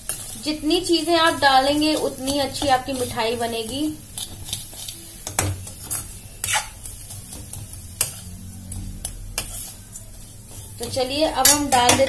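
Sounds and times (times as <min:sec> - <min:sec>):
spoon scraping dry mix in pan: 0:00.0 - 0:12.0
spoon clinking against metal pan: 0:10.8 - 0:12.0.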